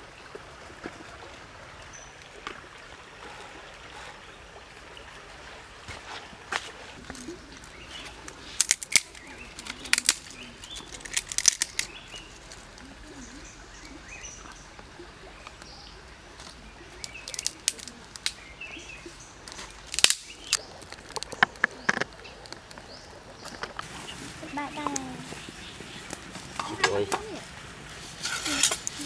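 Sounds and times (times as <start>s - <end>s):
dry sticks snapping: 7.0s - 12.8s, 16.4s - 18.4s, 19.4s - 23.9s, 26.0s - 27.3s.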